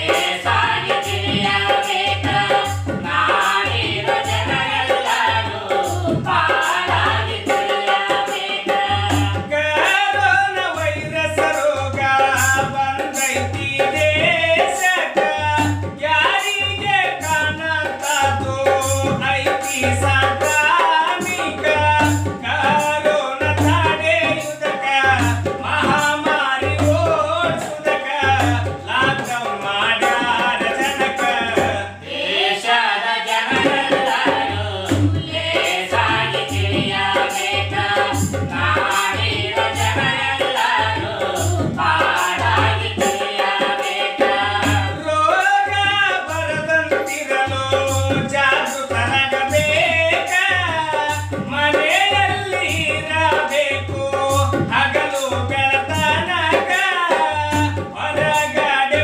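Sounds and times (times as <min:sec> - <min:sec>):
hand-played barrel drum beat: 0:00.0 - 0:32.6, 0:33.2 - 0:59.0
men singing: 0:00.0 - 0:59.0.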